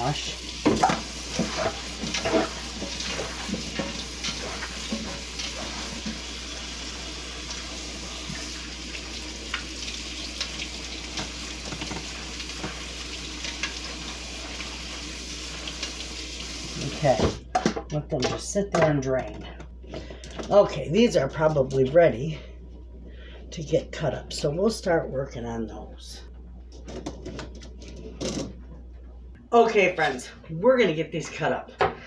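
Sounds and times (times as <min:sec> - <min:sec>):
faucet running water: 0:00.0 - 0:17.4.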